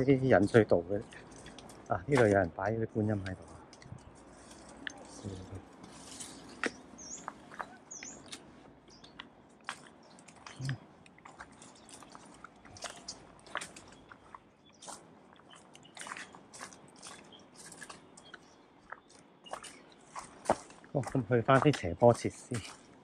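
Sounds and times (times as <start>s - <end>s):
footsteps crunching on leaves: 4.1s - 23.0s.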